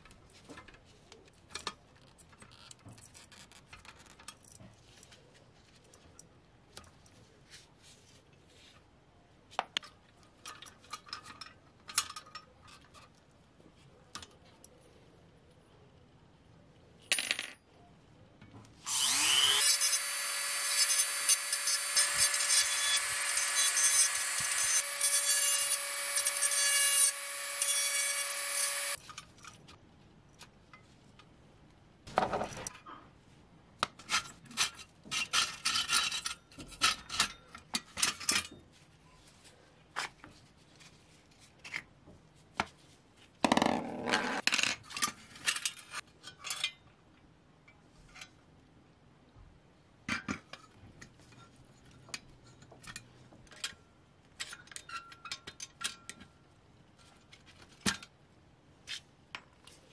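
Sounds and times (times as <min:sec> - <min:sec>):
power tool whining: 0:18.9 - 0:29.0.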